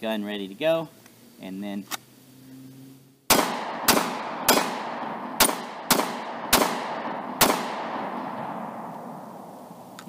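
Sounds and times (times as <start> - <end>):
pistol shots with echo: 3.3 - 9.3.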